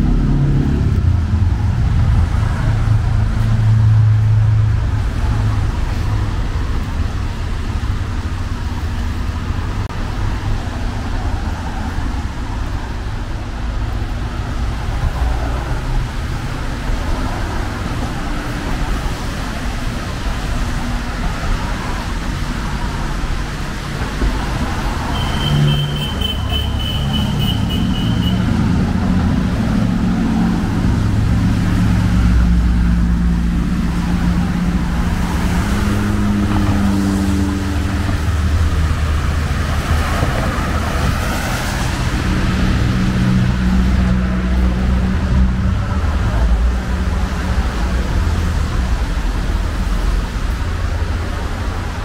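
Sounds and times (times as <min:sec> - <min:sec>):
rumble of car engines: 0:00.0 - 0:52.0
vehicle passing by: 0:23.8 - 0:52.0.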